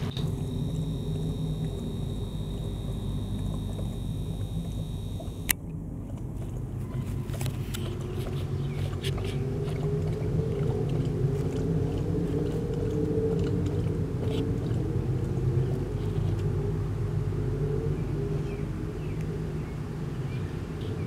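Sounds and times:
hen pecking at dirt: 0:00.0 - 0:16.5
low mechanical hum: 0:00.0 - 0:21.0.

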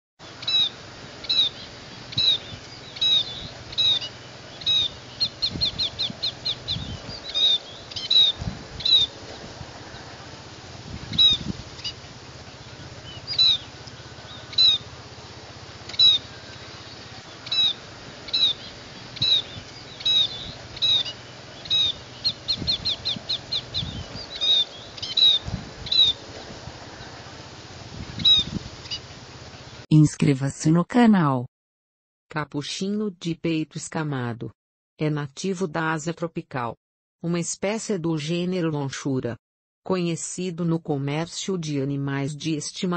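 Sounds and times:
small bird calling high notes: 0:00.4 - 0:09.1, 0:12.6 - 0:15.0, 0:15.8 - 0:26.2.

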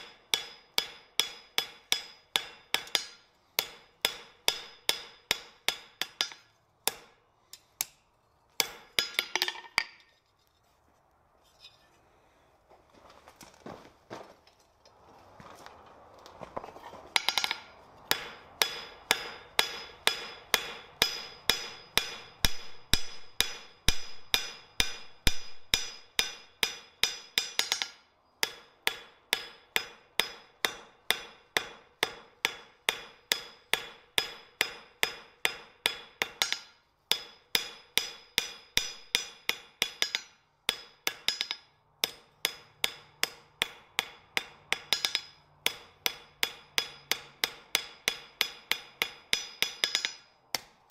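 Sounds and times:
hammer striking steel on anvil: 0:00.0 - 0:08.0, 0:08.6 - 0:10.1, 0:17.1 - 0:50.9.

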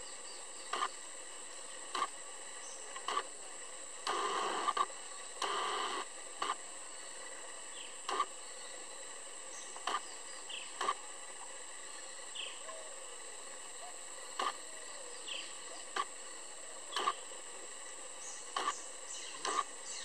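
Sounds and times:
high-pitched insect drone: 0:00.0 - 0:20.0
faint chirps: 0:12.0 - 0:20.0.

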